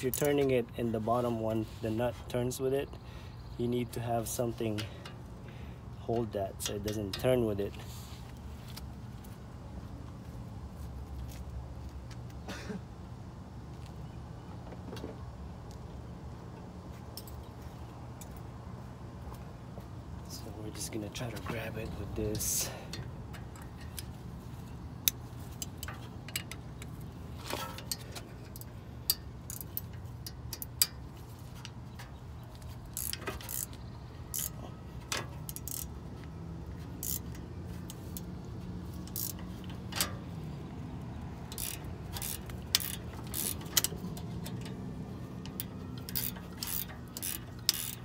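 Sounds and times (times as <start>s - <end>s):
metallic clicks of wrench and pliers: 0.0s - 0.5s, 25.0s - 31.0s, 32.9s - 35.9s, 37.0s - 38.3s, 39.0s - 40.2s, 41.5s - 48.0s.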